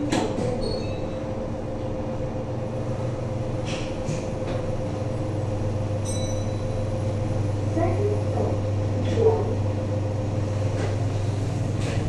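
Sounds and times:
lift humming: 0:00.0 - 0:12.0.

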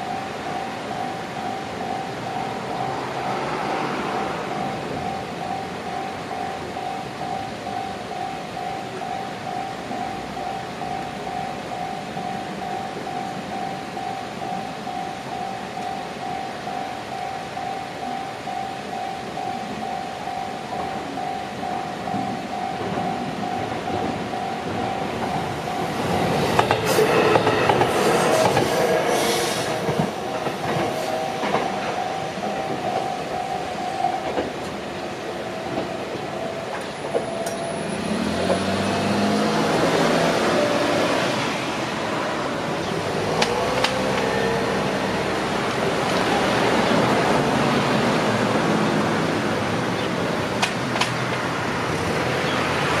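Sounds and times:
level crossing warning bell: 0:00.0 - 0:53.0
train rumble and wheel clacks: 0:00.0 - 0:53.0
cars driving past: 0:01.4 - 0:06.9, 0:35.8 - 0:53.0.

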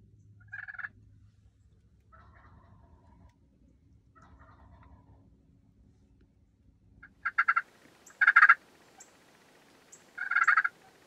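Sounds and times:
turkey gobbling: 0:00.5 - 0:00.9, 0:02.1 - 0:03.2, 0:04.2 - 0:05.2, 0:07.0 - 0:11.0.

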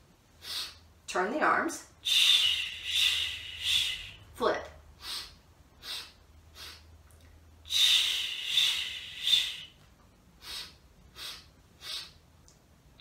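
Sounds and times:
woman inhaling short breaths: 0:02.1 - 0:04.2, 0:05.0 - 0:06.8, 0:07.7 - 0:09.7, 0:10.4 - 0:12.2.

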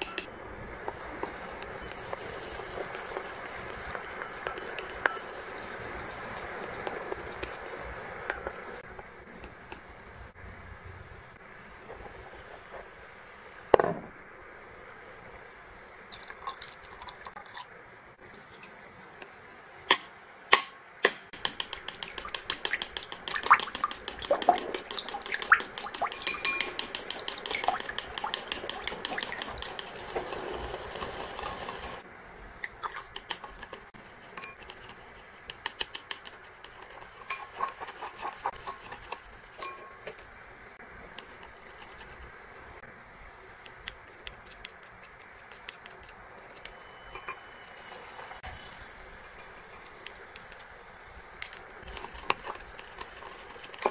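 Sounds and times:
chopsticks clicking against bowl: 0:21.4 - 0:29.9.

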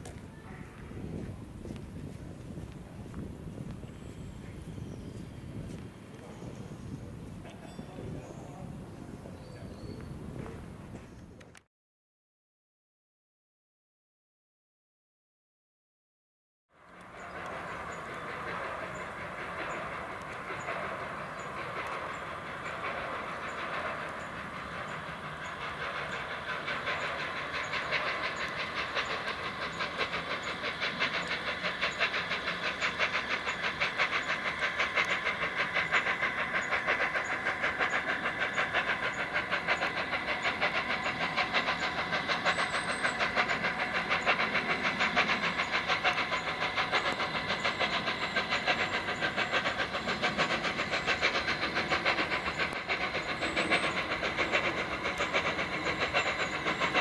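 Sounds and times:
steam locomotive chuffing: 0:16.8 - 0:57.0.

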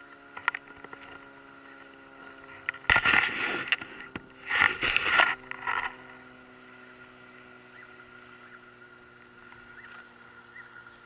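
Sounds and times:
faint steady hum: 0:00.0 - 0:11.0
microphone handling rubs and knocks: 0:02.5 - 0:06.0.

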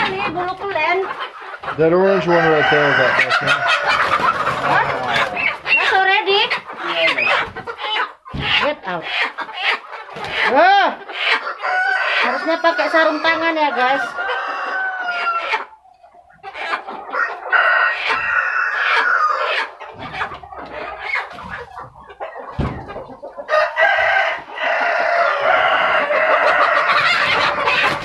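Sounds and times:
chickens crowing and clucking: 0:00.0 - 0:28.0
dull thump: 0:22.6 - 0:22.9.

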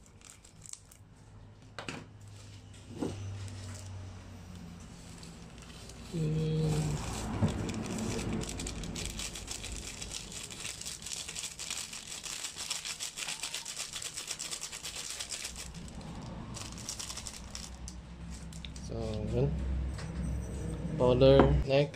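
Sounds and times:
plastic wrapper crinkling: 0:00.0 - 0:01.0, 0:05.0 - 0:18.8
crackers shaken into bowl: 0:06.8 - 0:18.8.

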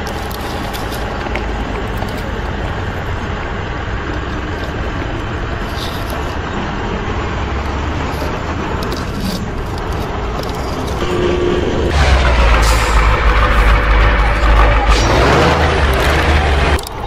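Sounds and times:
truck engine rumbling: 0:00.0 - 0:17.0
short steady tone: 0:11.0 - 0:14.6.

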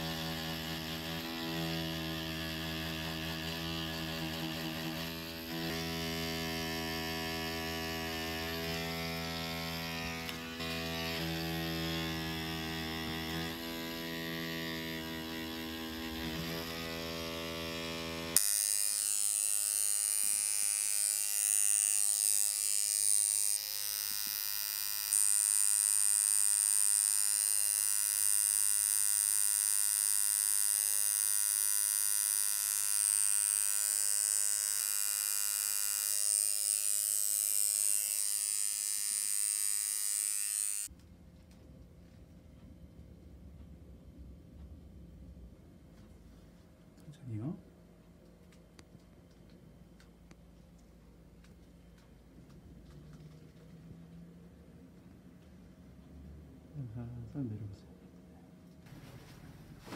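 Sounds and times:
tattoo machine buzzing: 0:00.0 - 0:40.9.

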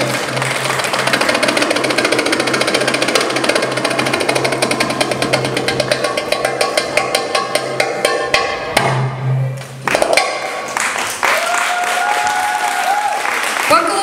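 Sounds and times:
applause: 0:00.0 - 0:01.3, 0:10.6 - 0:14.0
goblet drum played fast: 0:00.0 - 0:09.3.

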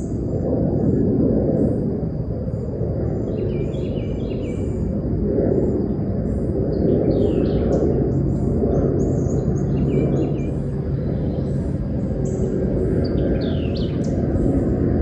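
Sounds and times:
birds chirping and singing: 0:07.1 - 0:07.9, 0:09.0 - 0:14.7.

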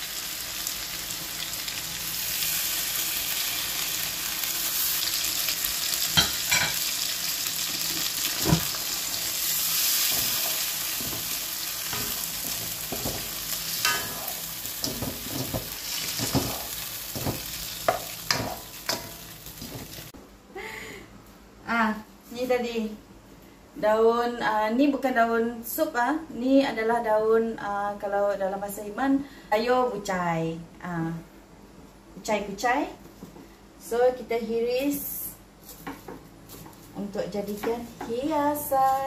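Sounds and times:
chicken sizzling in a wok: 0:00.0 - 0:20.2
spatula knocking and scraping wok: 0:09.9 - 0:20.1.

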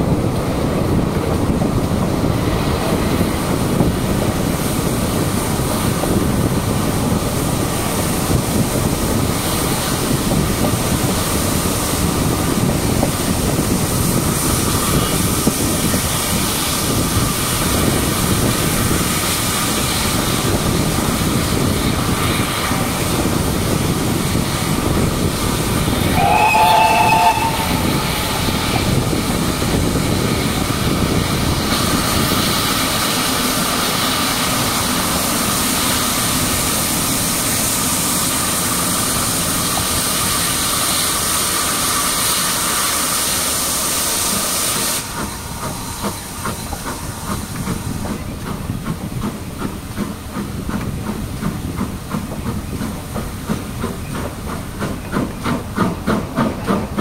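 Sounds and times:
train rumble and wind noise: 0:00.0 - 0:57.0
steam locomotive whistle: 0:26.0 - 0:29.2.

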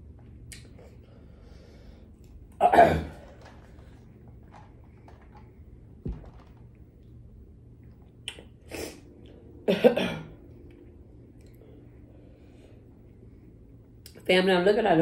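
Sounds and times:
woman coughing: 0:02.6 - 0:03.2, 0:09.7 - 0:10.4
dull thump: 0:06.0 - 0:06.7.

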